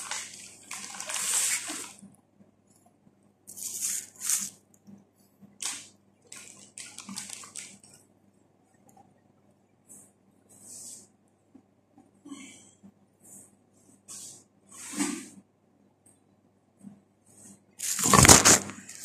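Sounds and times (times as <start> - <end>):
plastic bag rustling: 0.0 - 2.0, 17.8 - 19.0.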